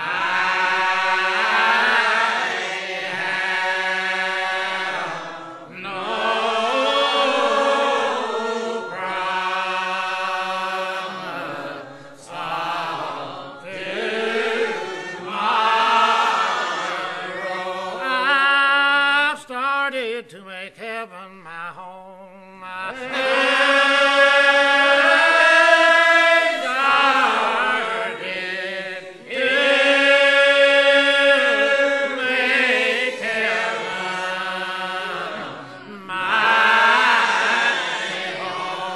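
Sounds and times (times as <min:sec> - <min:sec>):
congregation singing a hymn: 0:00.0 - 0:38.9.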